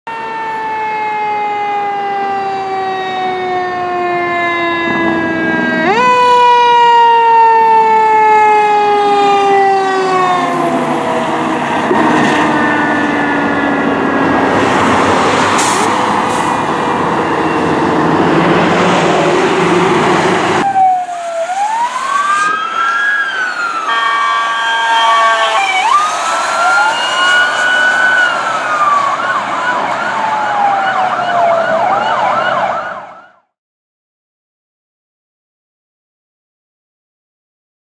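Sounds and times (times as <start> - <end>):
emergency siren cycling and yelping: 0.1 - 33.6
fire engine siren wailing: 0.1 - 33.6
truck passing: 8.8 - 33.0.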